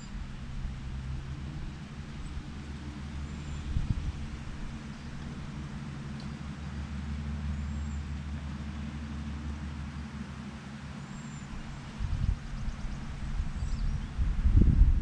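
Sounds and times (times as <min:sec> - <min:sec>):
low rumble: 0:00.0 - 0:07.9, 0:11.4 - 0:15.0
small engine humming: 0:00.0 - 0:15.0.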